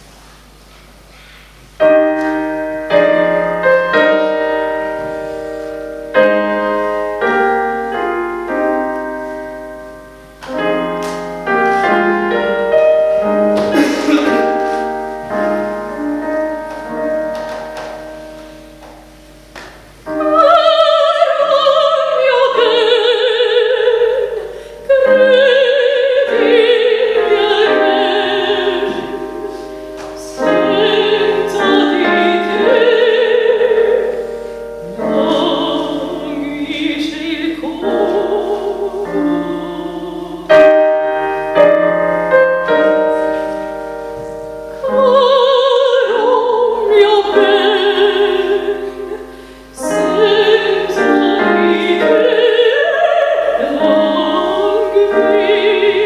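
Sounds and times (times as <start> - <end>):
piano chords: 0.0 - 56.0
woman singing with vibrato: 1.8 - 19.2, 20.0 - 56.0.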